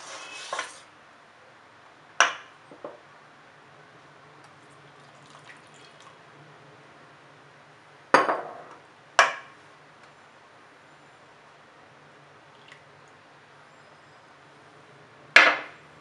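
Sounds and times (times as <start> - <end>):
milk trickling into batter: 4.6 - 6.2.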